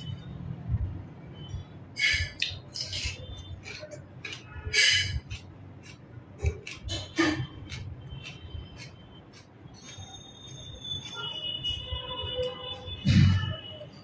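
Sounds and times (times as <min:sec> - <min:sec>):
man chewing and slurping food: 0:02.0 - 0:11.9.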